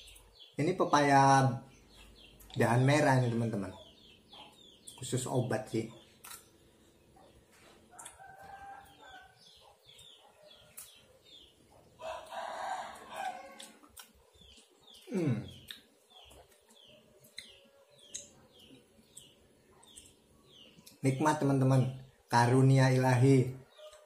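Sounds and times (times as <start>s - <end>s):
quiet chewing and slurping: 7.2s - 21.0s.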